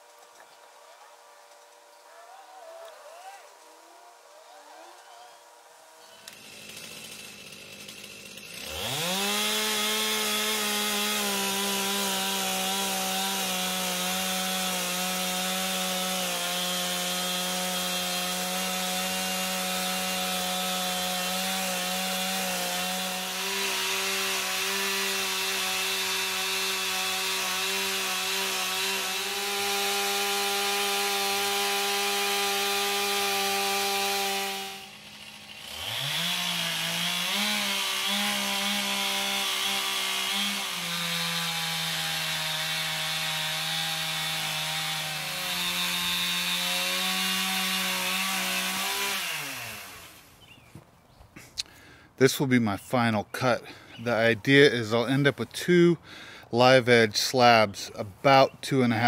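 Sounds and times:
chainsaw cutting log: 5.8 - 50.5.

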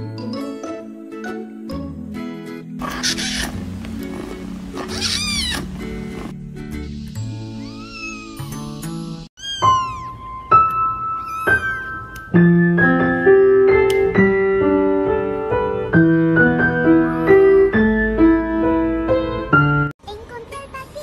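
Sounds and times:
piano melody: 9.6 - 19.9.

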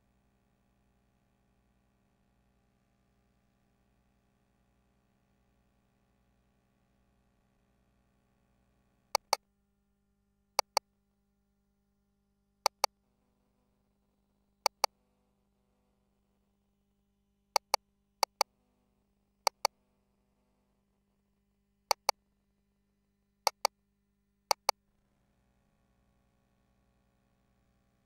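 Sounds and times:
faint steady hum: 0.0 - 28.0
console double clicks: 9.2 - 9.4.

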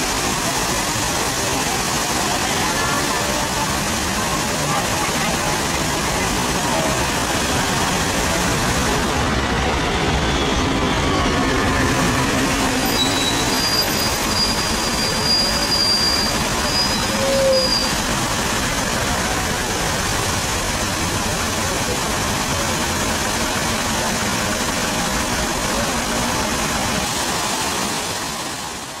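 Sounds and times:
fountain water splashing: 0.0 - 29.0.

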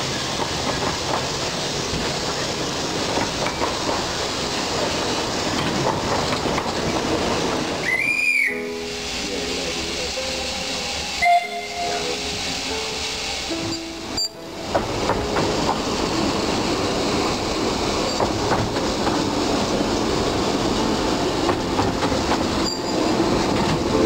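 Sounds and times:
steam train running: 0.0 - 24.0
steam whistle: 7.8 - 14.4
background music sustained notes: 7.9 - 18.0.

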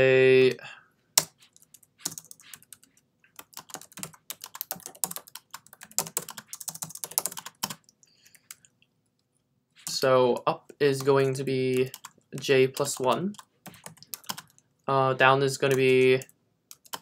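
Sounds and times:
computer keyboard typing: 1.2 - 8.6, 11.0 - 14.6, 15.7 - 17.0.

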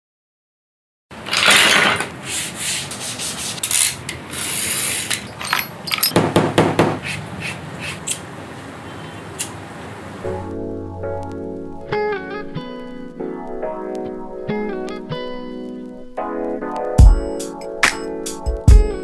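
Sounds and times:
tools scraping and rubbing leather: 1.3 - 6.2, 6.8 - 8.2.

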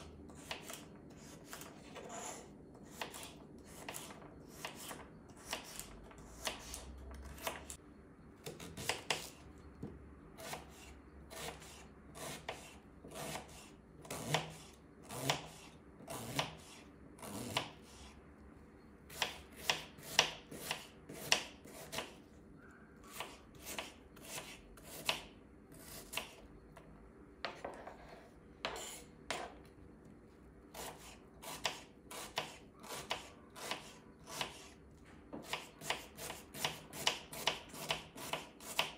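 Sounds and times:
knife chopping on wooden board: 19.1 - 22.2, 30.7 - 34.7, 35.3 - 38.9.

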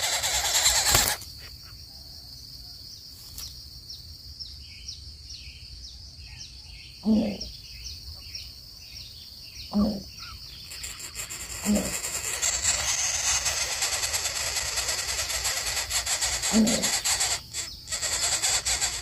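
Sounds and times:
coucal low hoots: 7.0 - 7.5, 9.7 - 10.1, 11.6 - 13.6
loud steady hiss: 10.8 - 19.0.

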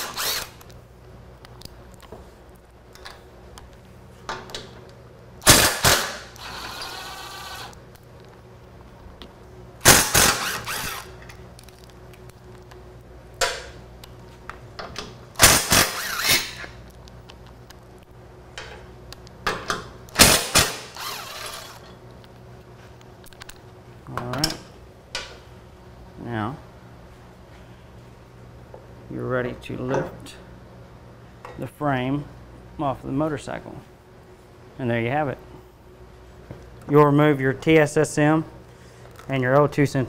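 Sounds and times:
power driver spinning: 0.0 - 0.7, 9.9 - 11.2, 15.4 - 16.6, 20.2 - 21.9.

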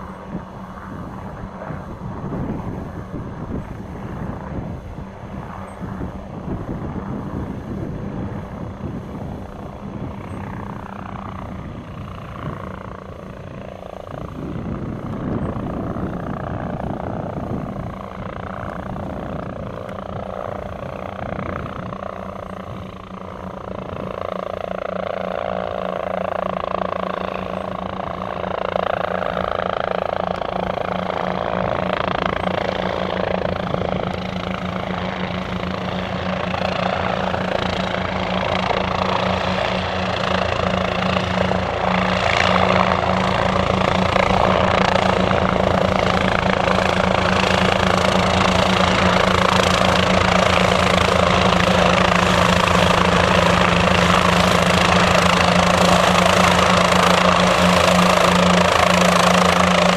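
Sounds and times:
helicopter rotors chopping: 0.0 - 59.9
piston engines humming: 0.0 - 59.9.

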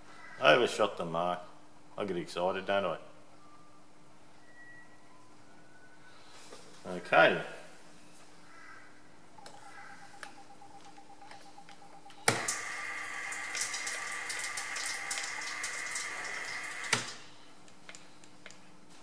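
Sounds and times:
milling machine motor whine: 9.4 - 17.0.

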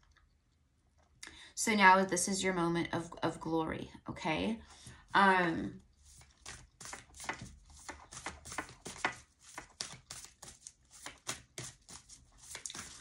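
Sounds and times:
cards being shuffled: 6.1 - 13.0.

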